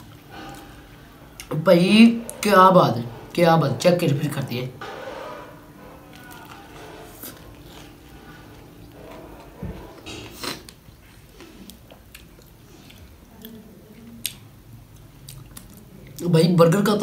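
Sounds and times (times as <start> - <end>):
person biting and chewing: 10.0 - 13.6.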